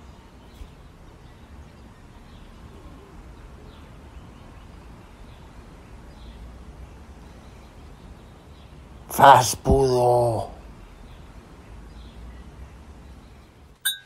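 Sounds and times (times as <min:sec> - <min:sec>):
faint bird chirps: 0:00.0 - 0:09.1.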